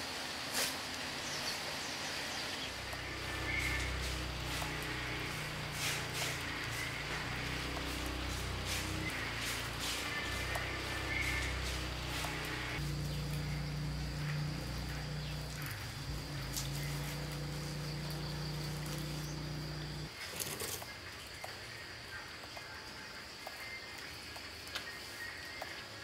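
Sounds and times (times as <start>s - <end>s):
insects buzzing: 1.2s - 26.0s
low steady hum: 2.7s - 20.1s.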